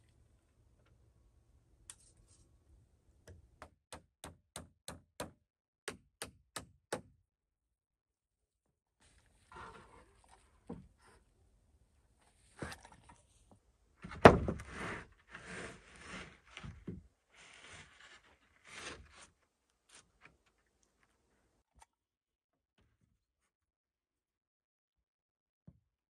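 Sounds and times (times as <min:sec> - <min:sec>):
scraping and rubbing: 0:14.4 - 0:20.6.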